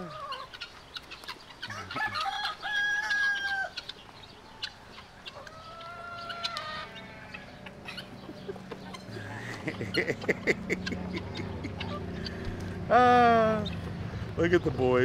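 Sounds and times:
rooster crowing: 1.7s - 3.9s, 5.5s - 7.8s.

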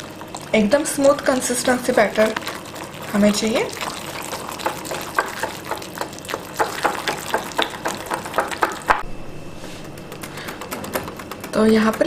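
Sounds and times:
whisk clicking against glass bowl: 3.8s - 9.0s.

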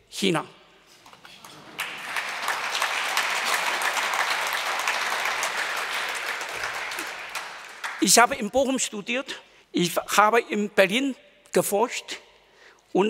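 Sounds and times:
audience applauding: 1.3s - 8.2s.

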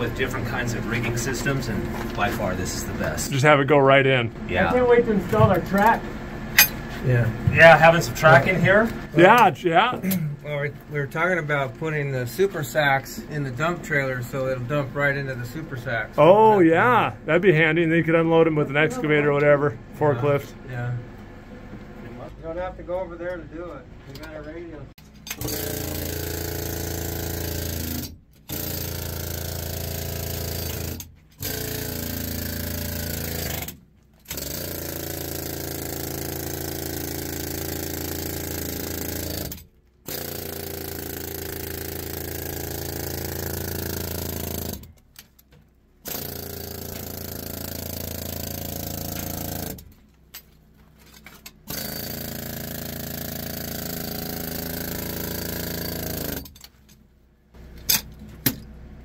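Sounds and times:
jackhammer breaking rock: 25.4s - 44.9s, 46.0s - 50.0s, 51.6s - 56.6s.

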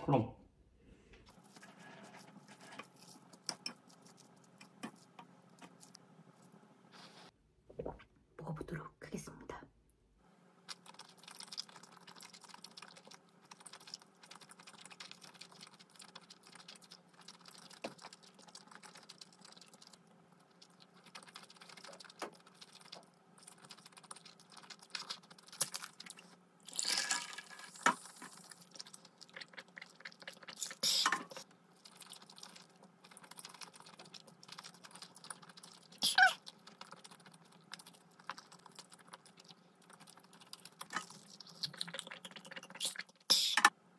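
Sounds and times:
noodle slurping: 10.7s - 26.2s, 26.8s - 43.6s
wet chewing clicks: 10.7s - 26.4s, 28.1s - 43.4s.

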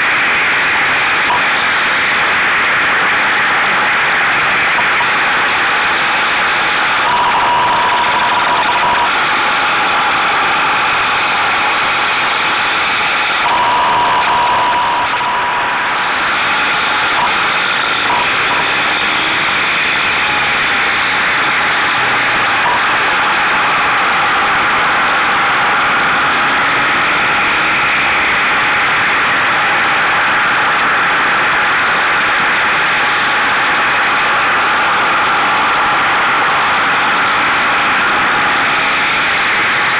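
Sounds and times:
motorcycle engine: 0.0s - 39.9s
wind and road noise: 0.0s - 39.9s.

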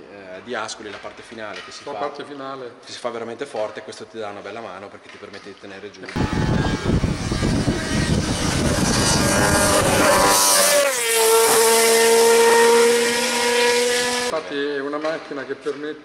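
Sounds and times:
racing engine at full throttle: 6.2s - 14.3s.

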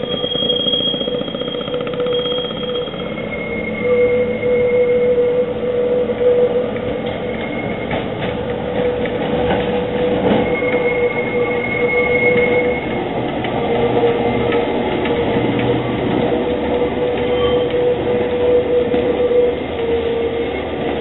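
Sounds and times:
wheels clacking over rails: 0.0s - 4.4s, 6.6s - 21.0s
tram wheels whining: 0.0s - 21.0s.

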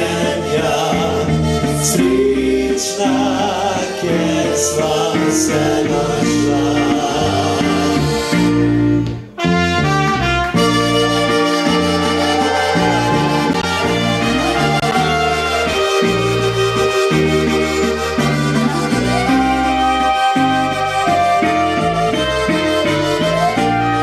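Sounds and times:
bass line: 0.0s - 24.0s
live band playing: 0.0s - 24.0s
saxophone: 0.0s - 24.0s
trumpet: 9.4s - 24.0s.

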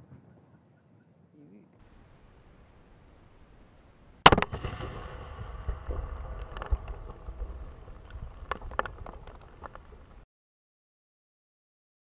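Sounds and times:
crackling and small pops: 4.2s - 10.2s
firework bang: 4.2s - 10.2s
firework cracks: 4.2s - 10.2s.

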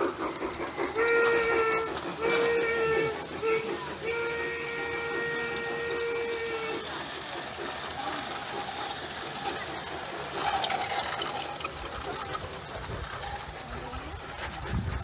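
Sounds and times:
model train clattering on track: 0.0s - 15.0s
steam locomotive whistle: 0.7s - 7.8s.

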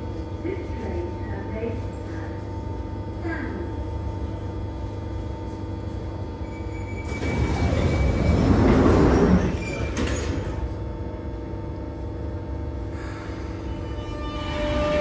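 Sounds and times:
train humming: 0.0s - 15.0s
sliding doors closing: 7.0s - 10.7s.

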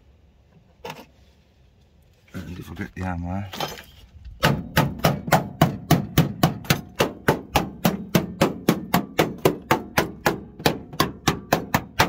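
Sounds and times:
hammer rapping on sheet steel: 4.4s - 12.0s.

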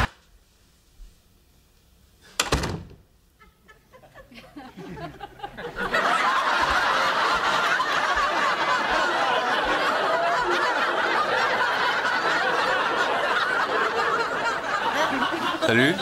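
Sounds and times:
studio audience laughing: 3.4s - 16.0s.

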